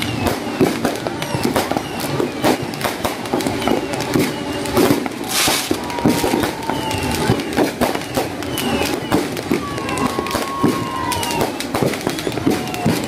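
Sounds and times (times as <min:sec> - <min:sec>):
falling firework whistles: 0:00.0 - 0:13.0
fireworks cracks and bangs: 0:00.0 - 0:13.0
hissing firework burst: 0:00.0 - 0:13.0.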